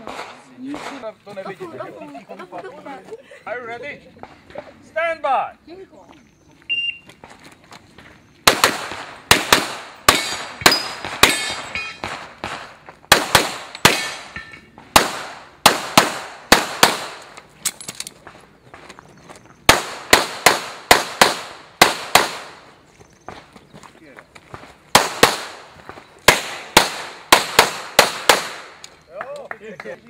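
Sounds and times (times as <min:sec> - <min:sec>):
pistol shots with echo: 0:00.0 - 0:01.1, 0:08.4 - 0:17.4, 0:19.7 - 0:22.6, 0:24.9 - 0:28.8.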